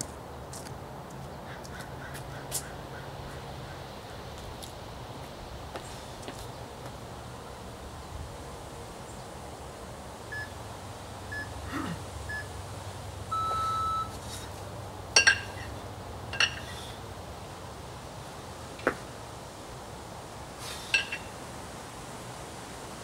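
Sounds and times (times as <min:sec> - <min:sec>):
timer beeps: 0:13.3 - 0:14.1
kettlebells clanking together: 0:15.2 - 0:16.9, 0:20.9 - 0:21.3.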